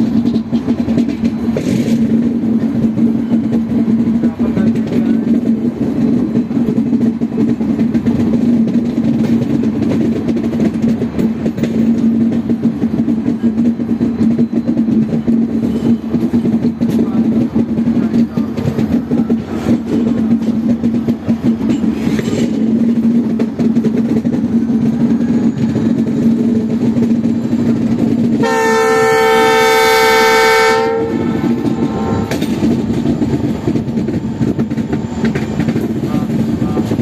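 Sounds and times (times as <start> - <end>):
train wheels rumbling on rails: 0.0 - 37.0
train horn blast: 28.4 - 32.4.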